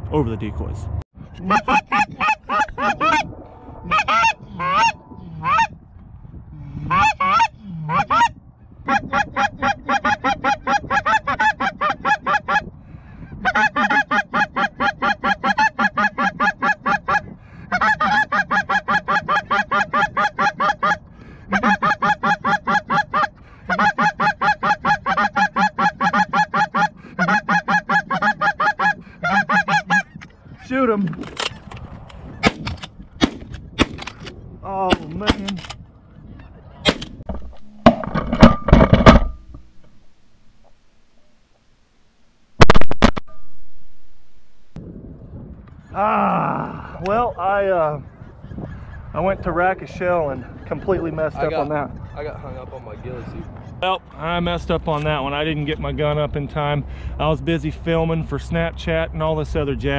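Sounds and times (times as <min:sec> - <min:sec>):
goose call honks: 0:01.4 - 0:05.7, 0:13.4 - 0:30.2.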